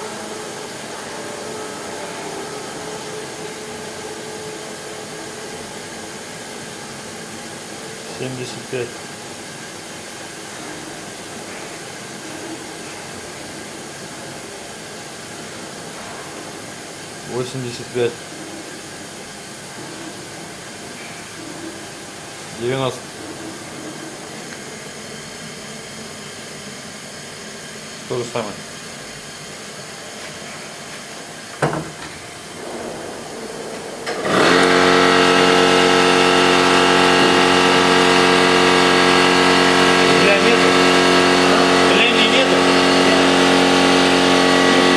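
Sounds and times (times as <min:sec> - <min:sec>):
loud steady machine drone: 0:00.0 - 0:44.9
gas torch hissing: 0:28.0 - 0:44.9.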